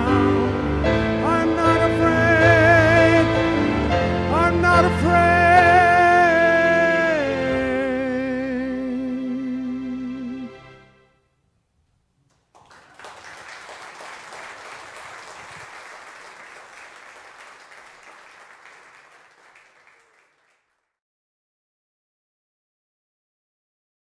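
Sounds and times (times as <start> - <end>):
congregation applauding: 12.3 - 20.8.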